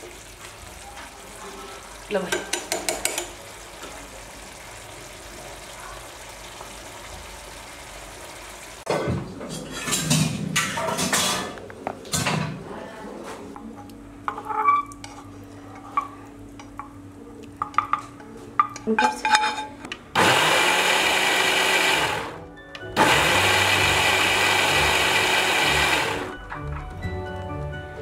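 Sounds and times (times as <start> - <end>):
mixer grinder running: 20.2 - 22.4, 23.0 - 26.4.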